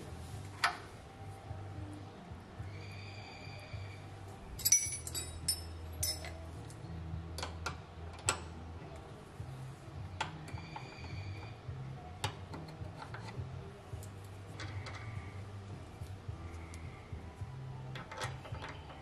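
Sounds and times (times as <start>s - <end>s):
metal wrenches clinking: 4.6s - 6.4s.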